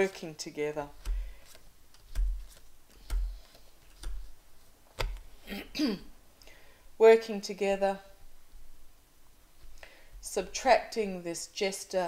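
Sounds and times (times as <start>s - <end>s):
cards tapping on table: 1.0s - 4.3s, 5.0s - 5.2s.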